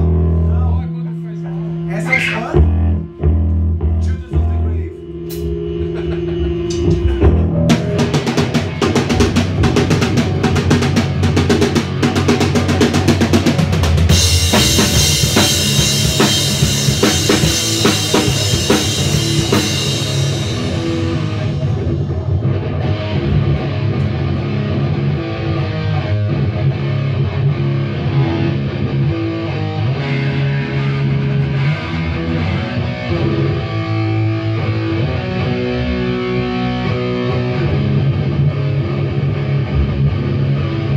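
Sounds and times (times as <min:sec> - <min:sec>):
sustained guitar notes: 0:00.0 - 0:40.9
bass drum and snare: 0:05.2 - 0:21.9.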